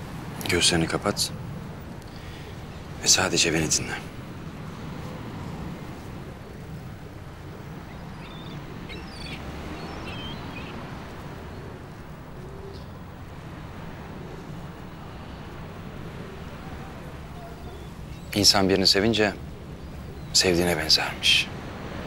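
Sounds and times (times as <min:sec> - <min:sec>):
high bird chirps: 0:07.8 - 0:11.6.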